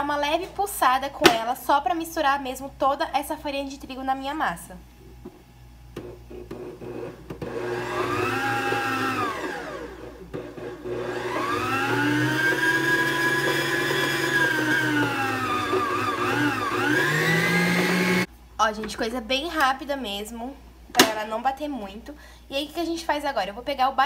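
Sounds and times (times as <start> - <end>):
stand mixer motor whining: 6.3 - 18.3.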